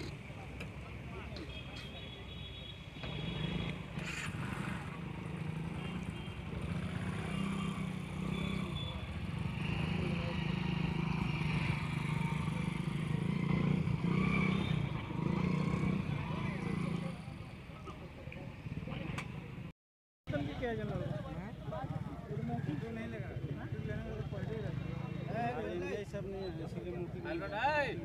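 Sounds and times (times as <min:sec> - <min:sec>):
crowd chattering: 0:00.0 - 0:06.6, 0:16.5 - 0:19.7
small motorcycle engine: 0:03.0 - 0:17.2.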